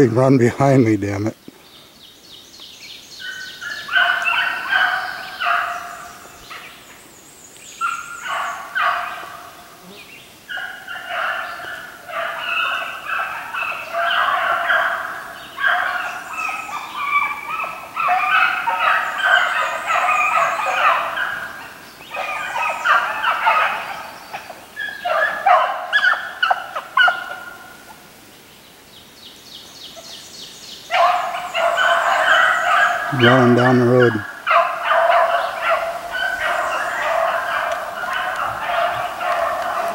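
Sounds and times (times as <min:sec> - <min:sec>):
hounds baying: 0:03.2 - 0:06.8, 0:07.8 - 0:09.6, 0:10.5 - 0:28.0, 0:30.9 - 0:39.9.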